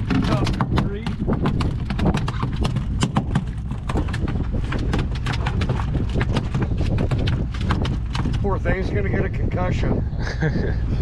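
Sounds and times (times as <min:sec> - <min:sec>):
fish slapping on deck: 0:00.0 - 0:08.5
steady low rumble: 0:00.0 - 0:11.0.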